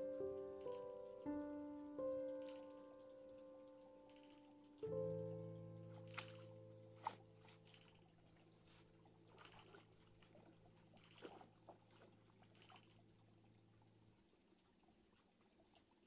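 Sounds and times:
faint keyboard chord: 0:00.0 - 0:09.3
water splashes: 0:02.0 - 0:16.0.

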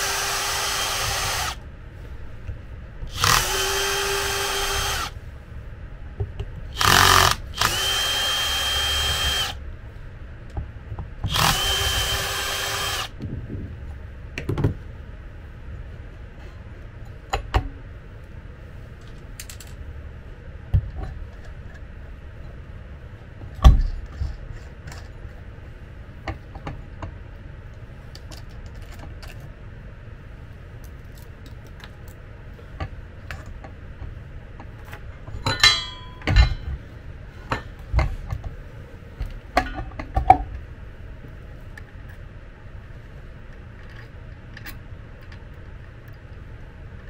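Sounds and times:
metallic clinks and knocks: 0:35.3 - 0:36.8.

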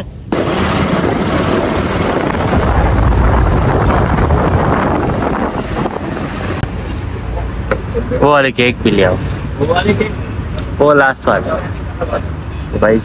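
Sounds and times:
wind on microphone: 0:00.4 - 0:06.7.

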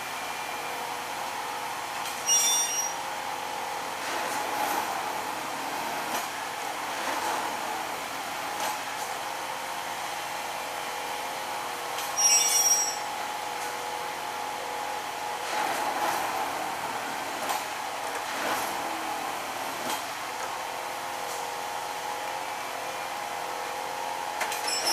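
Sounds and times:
track tamping machine humming: 0:00.0 - 0:24.9
high-pitched squeal: 0:02.2 - 0:03.0, 0:12.2 - 0:13.2.

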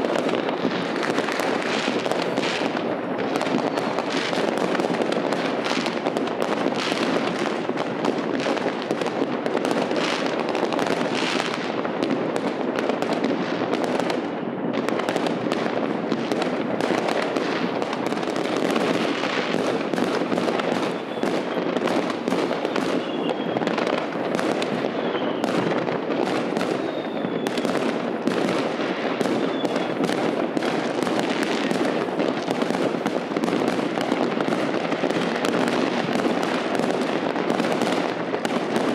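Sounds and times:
fireworks and firecrackers banging: 0:00.0 - 0:38.9
faint short whistles: 0:25.0 - 0:25.4.

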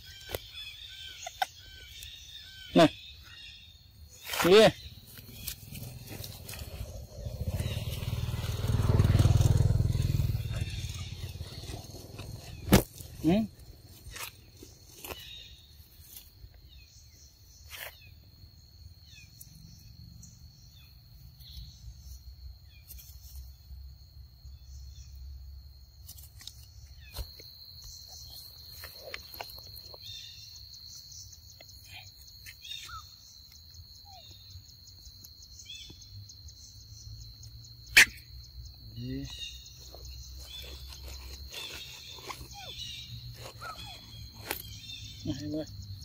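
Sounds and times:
high insect trill: 0:00.0 - 0:46.0
low rumble: 0:05.7 - 0:12.7.

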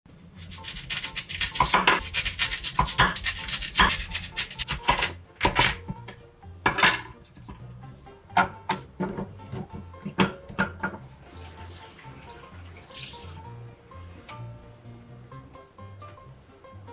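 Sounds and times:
knife cutting on wooden board: 0:00.5 - 0:05.7.

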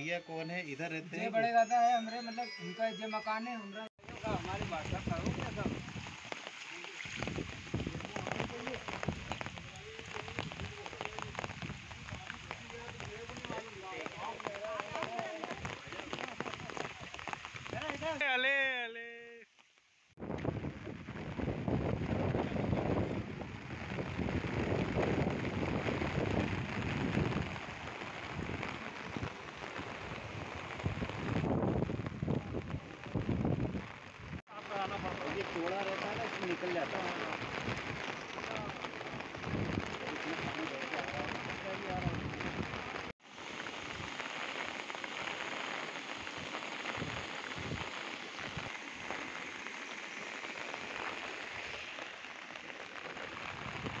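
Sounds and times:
floodwater rushing: 0:04.0 - 0:18.4, 0:20.2 - 0:54.0
rain falling: 0:04.0 - 0:54.0
wind buffeting microphone: 0:07.2 - 0:14.1, 0:20.2 - 0:34.4, 0:39.4 - 0:40.1.

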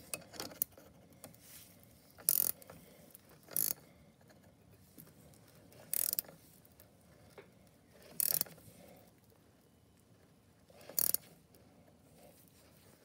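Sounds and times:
ratchet wrench clicking: 0:02.2 - 0:02.6, 0:03.5 - 0:03.8, 0:05.9 - 0:06.3, 0:08.2 - 0:08.5, 0:10.9 - 0:11.2.

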